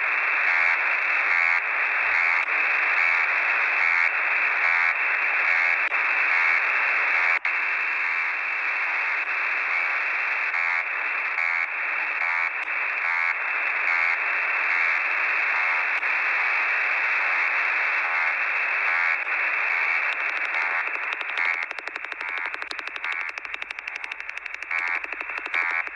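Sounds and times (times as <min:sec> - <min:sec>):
faint repeating radio pulses: 0:00.0 - 0:25.9
radio static hiss: 0:00.0 - 0:25.9.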